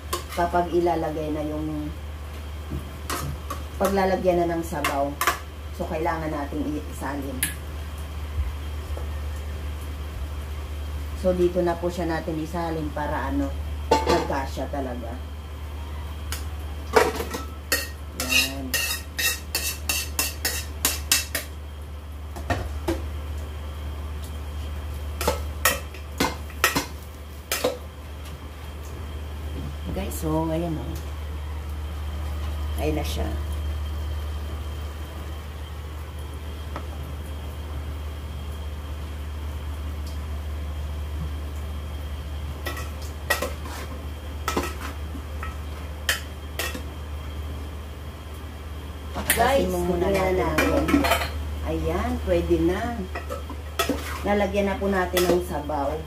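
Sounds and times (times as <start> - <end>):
steady low hum: 0.0 - 56.0
metal spoon scraping wok: 17.3 - 21.3.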